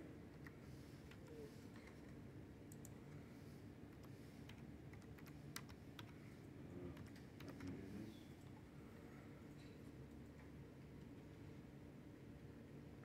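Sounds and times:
low room hum: 0.0s - 13.0s
computer keyboard keystrokes: 2.7s - 3.0s, 3.9s - 6.2s.

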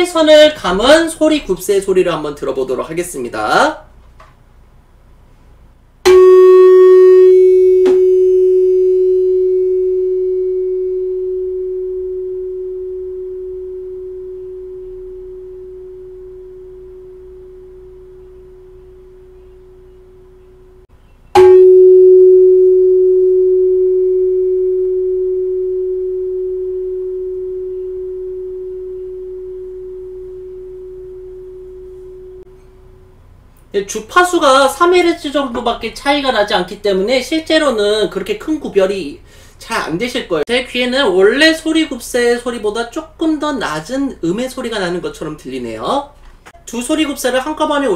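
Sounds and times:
tuning fork ringing: 6.1s - 33.0s.

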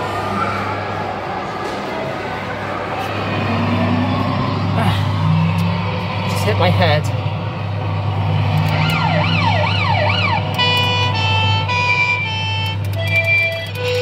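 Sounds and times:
steady low hum: 2.2s - 12.7s
electronic siren wail: 7.4s - 14.0s.

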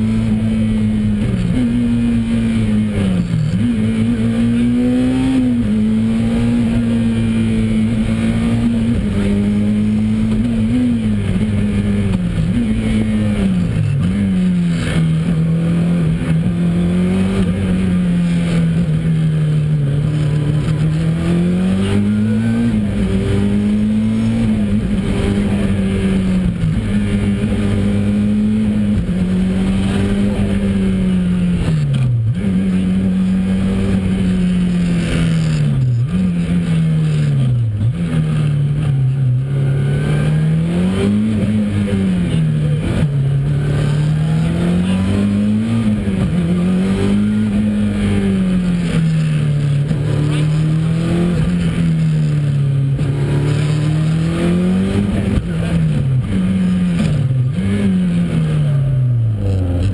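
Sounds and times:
car engine revving: 0.0s - 59.9s
road noise: 0.0s - 59.9s.

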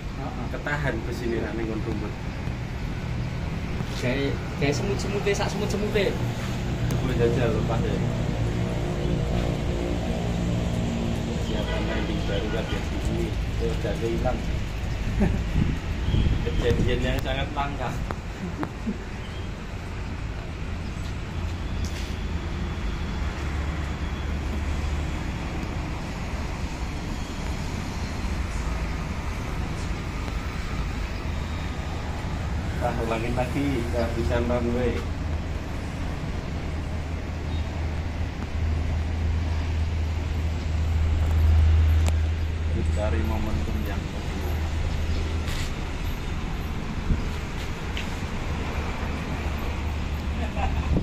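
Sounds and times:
wind rumble on microphone: 14.2s - 17.3s, 50.8s - 51.0s.

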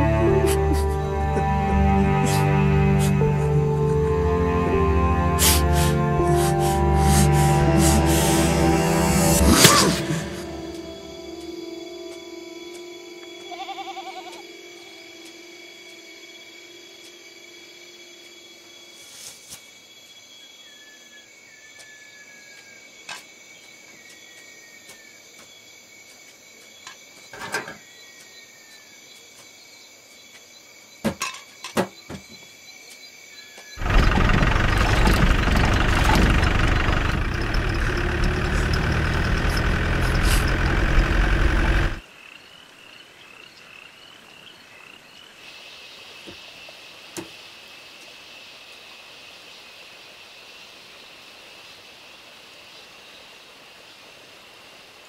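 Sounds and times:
insect trilling: 5.4s - 22.9s
loud rumbling noise: 5.6s - 11.3s, 33.8s - 42.0s.

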